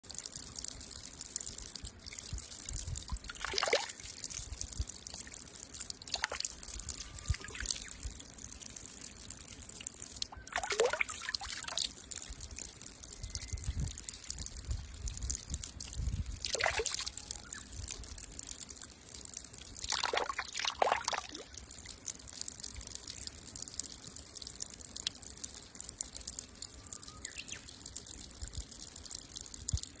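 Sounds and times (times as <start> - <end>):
water trickling onto stone: 0.0 - 30.0
water splashes: 0.1 - 23.7.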